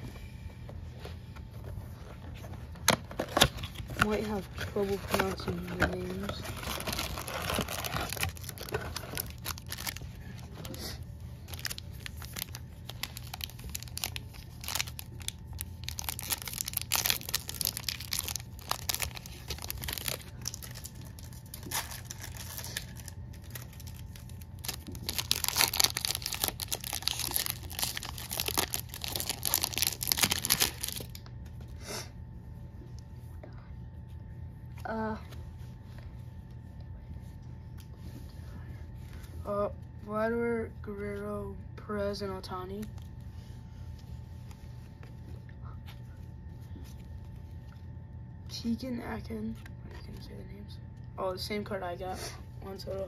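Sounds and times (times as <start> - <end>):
plastic wrapper crinkling and tearing: 2.9 - 10.8, 11.4 - 31.3.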